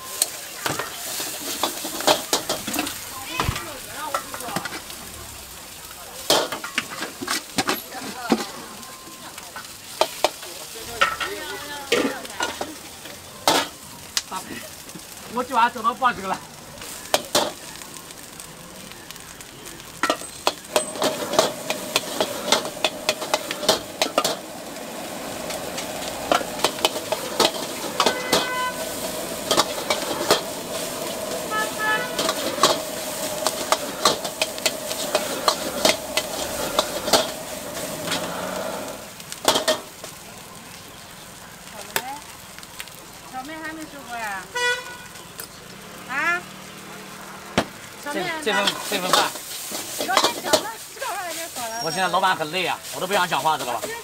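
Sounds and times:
greens sizzling in a wok: 0.0s - 54.0s
metal spatula clanking on pan: 11.0s - 12.7s, 20.0s - 24.5s, 25.8s - 30.5s, 48.5s - 50.7s.

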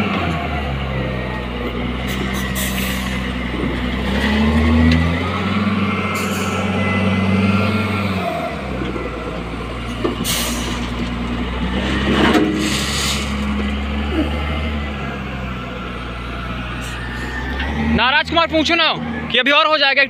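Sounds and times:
wheel loader diesel engine revving: 0.0s - 20.0s.

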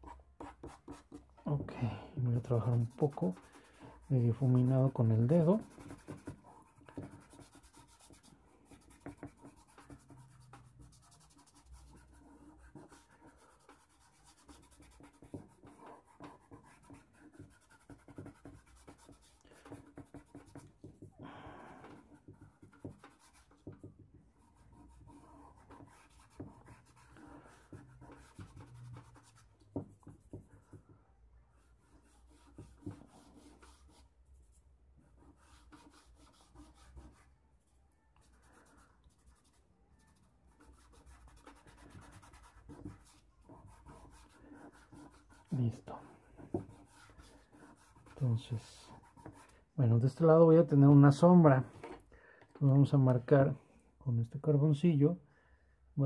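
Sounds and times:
fingertips rubbing charcoal on paper: 2.4s - 20.7s.

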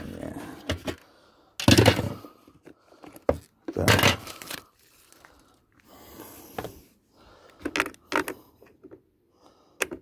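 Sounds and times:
plastic scraping rustle: 3.2s - 5.6s.

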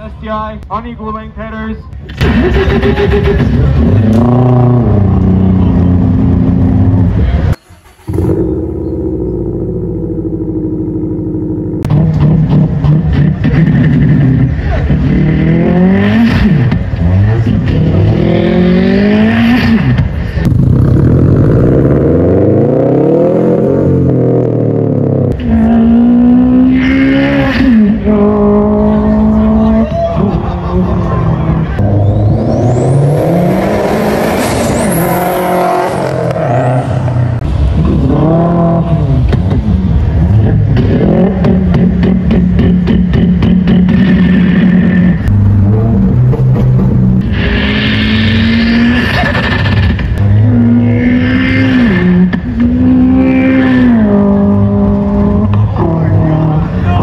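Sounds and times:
car exhaust revving: 2.0s - 57.0s
car engine idling: 5.0s - 12.0s
man imitating car engine: 41.1s - 44.4s.

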